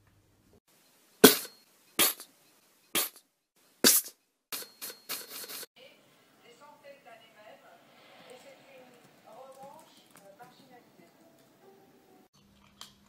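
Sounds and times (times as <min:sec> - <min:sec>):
fart noises: 0:01.2 - 0:02.3, 0:03.0 - 0:03.2.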